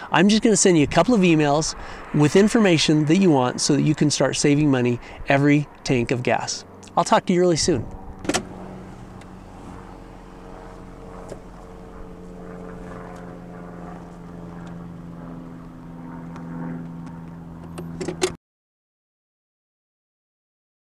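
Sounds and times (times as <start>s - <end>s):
truck engine running: 7.7s - 18.2s.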